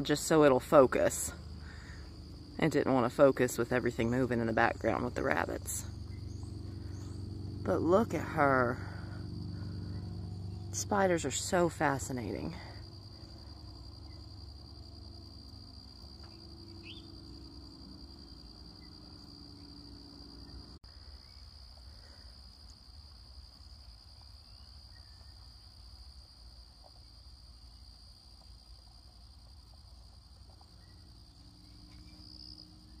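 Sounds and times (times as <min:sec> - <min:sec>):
faint low rumble: 0:00.0 - 0:22.3
insects trilling: 0:00.0 - 0:33.0.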